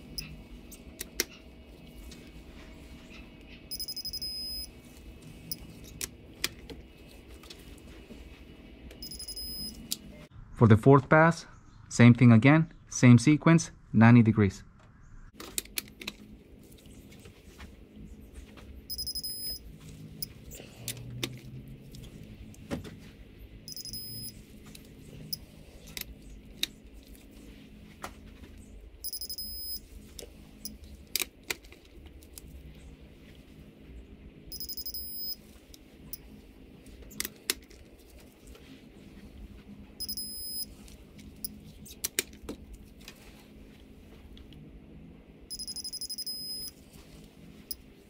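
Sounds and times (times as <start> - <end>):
torque wrench beeping: 3.7 - 4.7, 9.0 - 9.8, 18.9 - 19.6, 23.7 - 24.4, 29.0 - 29.8, 34.5 - 35.4, 40.0 - 40.7, 45.5 - 46.7.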